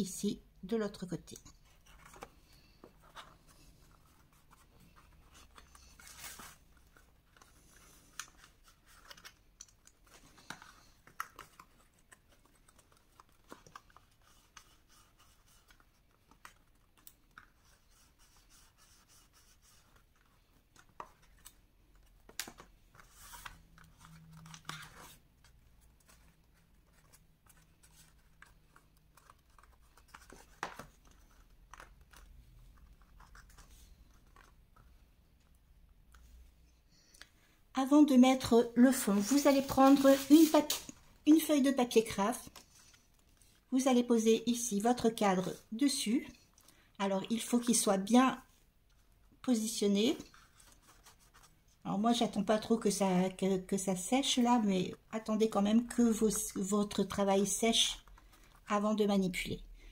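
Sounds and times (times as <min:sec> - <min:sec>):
hands handling card stock: 0:19.8 - 0:35.0, 0:38.9 - 0:41.0.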